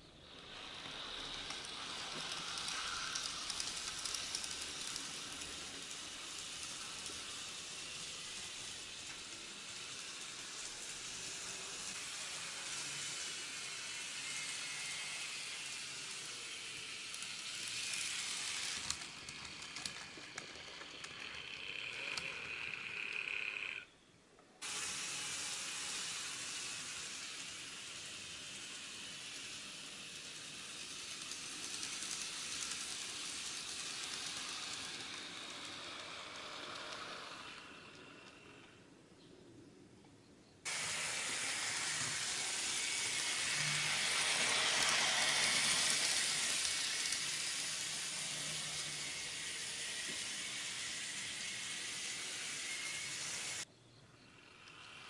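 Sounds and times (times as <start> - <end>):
model train wheels rattling on rail: 0.0 - 24.0, 24.6 - 38.8, 40.7 - 53.7, 54.3 - 55.0.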